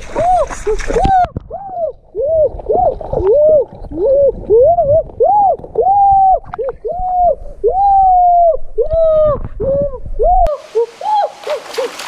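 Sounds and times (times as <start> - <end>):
hands splashing in water: 11.4 - 12.0.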